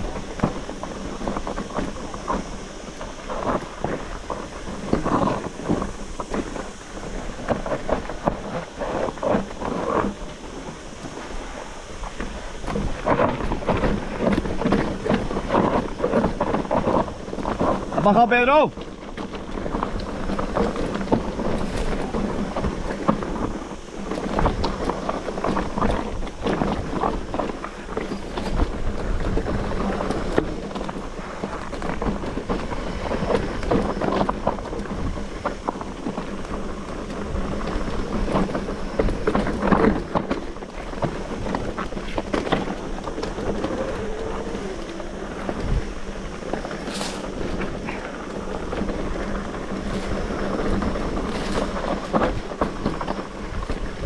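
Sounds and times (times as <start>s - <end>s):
tyres crunching over stones: 0.0s - 54.0s
wind on microphone: 0.0s - 54.0s
bike frame rattling: 11.9s - 54.0s.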